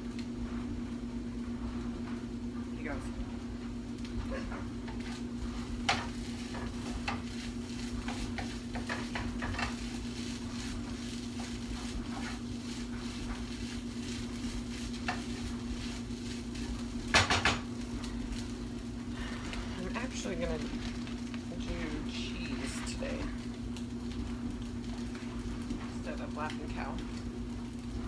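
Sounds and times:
steady low hum: 0:00.0 - 0:28.0
utensil clatter: 0:04.4 - 0:18.0
utensil scraping cookware: 0:04.9 - 0:17.6.

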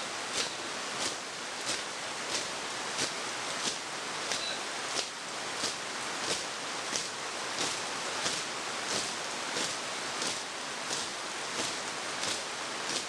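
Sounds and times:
heavy rain falling: 0:00.0 - 0:13.0
sharp taps in marching beat: 0:00.3 - 0:13.0.

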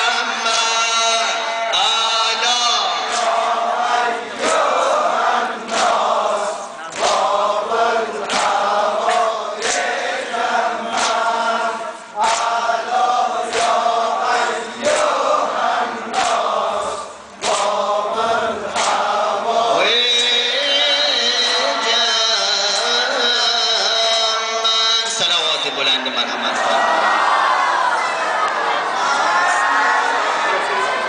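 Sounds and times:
man chanting into a microphone: 0:00.0 - 0:03.3, 0:19.4 - 0:26.8.

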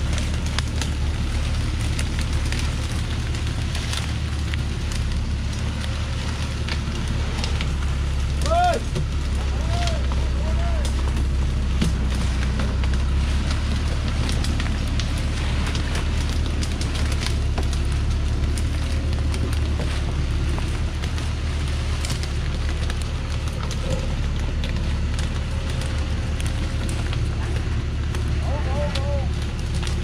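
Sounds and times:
branches crackling under tyres: 0:00.0 - 0:30.0
diesel truck engine rumbling: 0:00.0 - 0:30.0.

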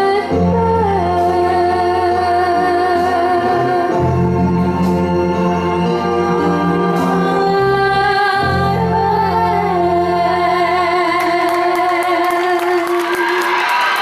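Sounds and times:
two people singing: 0:06.0 - 0:13.4
audience clapping: 0:11.2 - 0:14.0.

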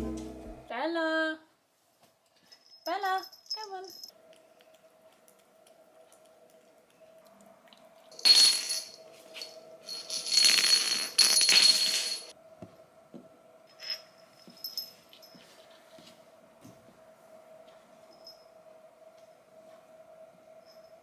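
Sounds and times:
faint steady hum: 0:00.0 - 0:21.0
jingling metallic rattle: 0:02.4 - 0:04.1, 0:08.1 - 0:12.3.

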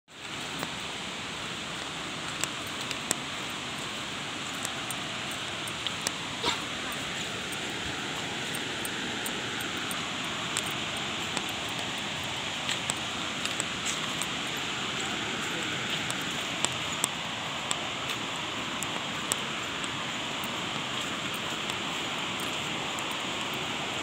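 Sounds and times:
waterfall rushing: 0:00.1 - 0:24.0.

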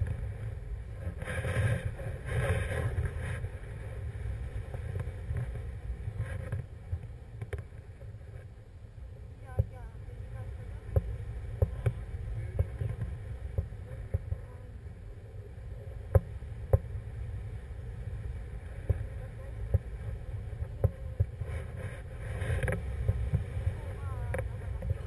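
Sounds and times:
wind buffeting microphone: 0:09.2 - 0:25.0.

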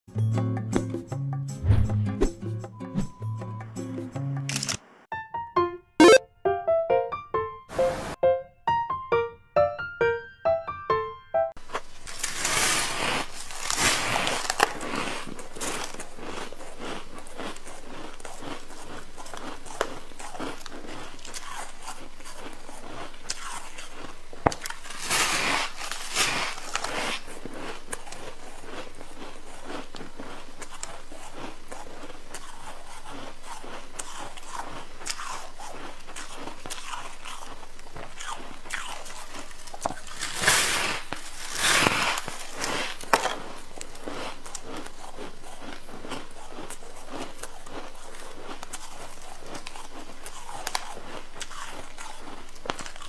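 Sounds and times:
person crunching ice: 0:11.6 - 0:53.0
chewing: 0:11.7 - 0:53.0.

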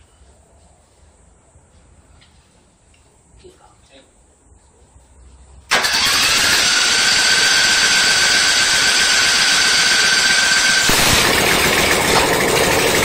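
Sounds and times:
mower engine running fast: 0:05.7 - 0:13.0.

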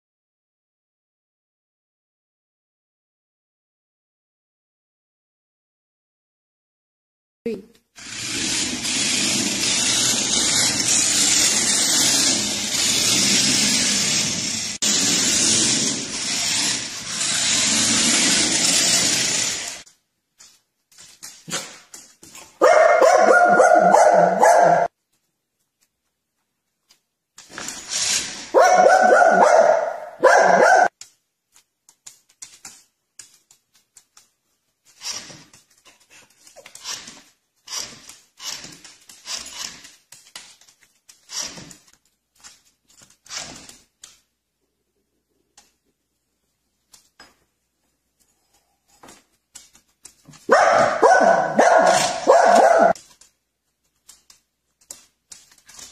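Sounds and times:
dog barking: 0:22.6 - 0:24.9, 0:28.5 - 0:30.9, 0:50.5 - 0:53.0.

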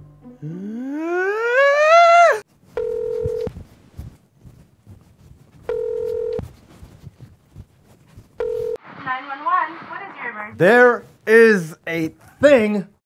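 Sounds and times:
man screaming: 0:00.4 - 0:02.4
telephone ringback tone: 0:02.8 - 0:03.5, 0:05.7 - 0:06.4, 0:08.4 - 0:08.8.

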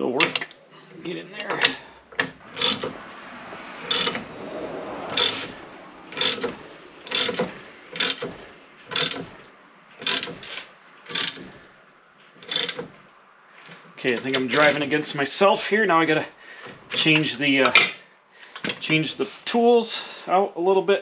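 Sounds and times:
hand ratchet clicking: 0:01.5 - 0:03.0, 0:03.9 - 0:04.2, 0:05.2 - 0:05.5, 0:06.2 - 0:09.4, 0:10.0 - 0:11.5, 0:12.4 - 0:13.0.

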